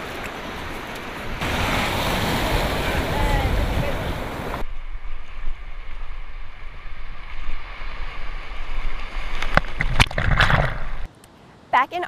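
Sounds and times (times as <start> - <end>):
ocean surf swirling: 0.0 - 4.6
wind on microphone: 1.2 - 11.1
wave splashes over camera: 1.4 - 4.6.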